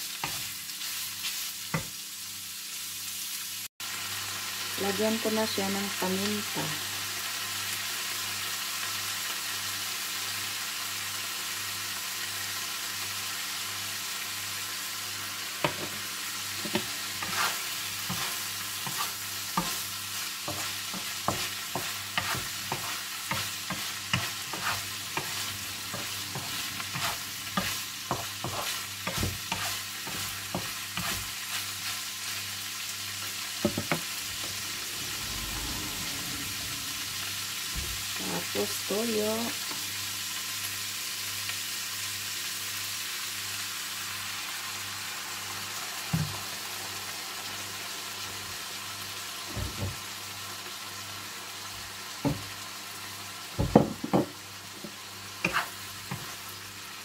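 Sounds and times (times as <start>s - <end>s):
chicken sizzling in a pan: 0.0s - 57.0s
wooden spatula scraping a pan: 16.6s - 32.5s, 55.4s - 56.5s.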